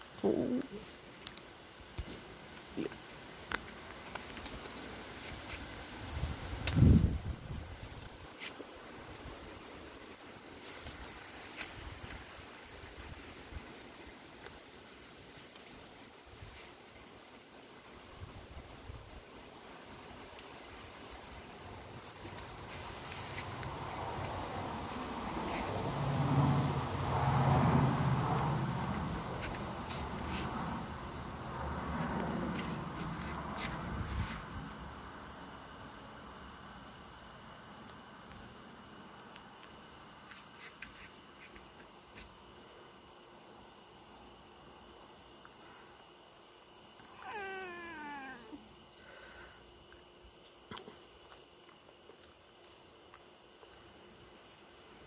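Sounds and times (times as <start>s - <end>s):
crickets chirring: 0.0s - 55.0s
cat low vocal sounds: 0.2s - 0.9s, 47.0s - 48.7s
cat meowing: 47.1s - 48.6s.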